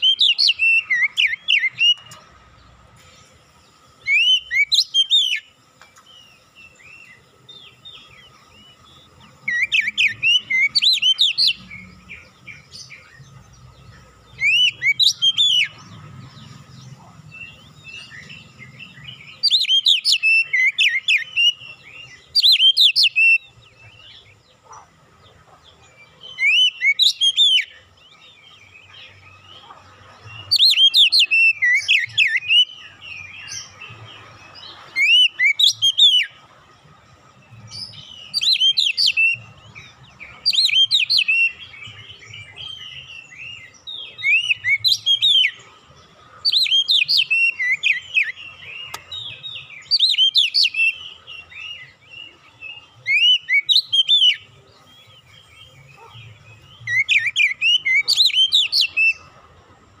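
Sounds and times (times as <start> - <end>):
bird singing whistled phrases: 0.0 - 2.2, 4.0 - 5.5, 9.4 - 13.0, 14.4 - 15.8, 17.4 - 23.5, 30.4 - 33.8, 34.9 - 36.3, 37.9 - 39.5, 40.4 - 45.6, 46.4 - 52.0, 53.0 - 54.5, 56.8 - 59.3.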